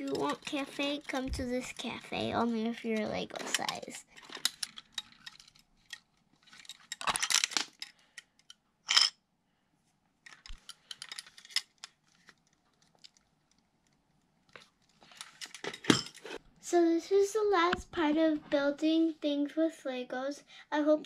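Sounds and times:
plastic bricks clicking and rattling: 0:02.8 - 0:09.1.

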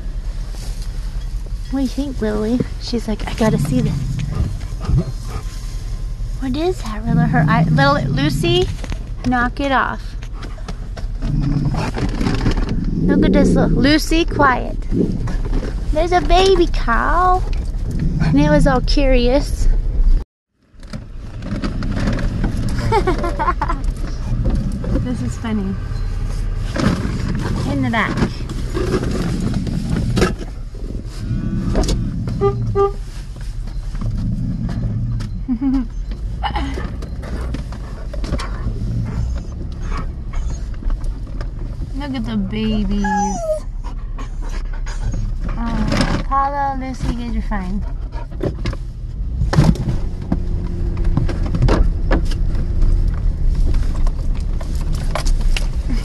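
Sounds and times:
engine low rumble: 0:00.0 - 0:56.0
car horn beeps: 0:32.4 - 0:33.0.

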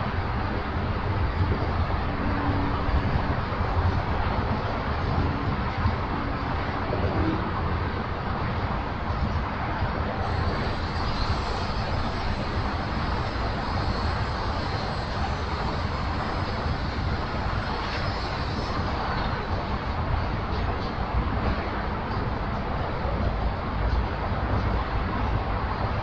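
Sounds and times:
distant freight train rumble: 0:00.0 - 0:26.0
faint high whine: 0:10.2 - 0:21.0.

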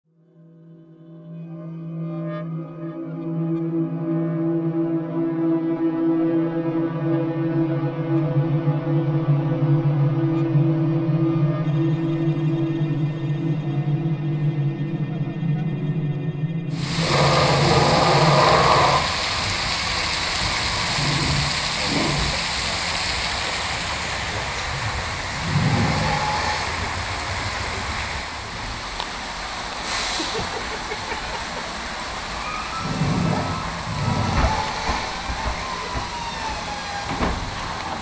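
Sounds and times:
water rushing and splashing: 0:16.8 - 0:38.0.

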